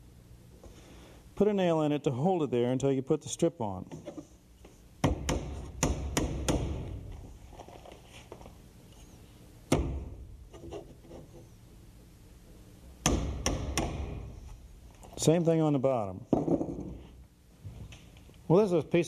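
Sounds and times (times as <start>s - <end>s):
hammer tapping nail into wood: 5.0s - 6.8s.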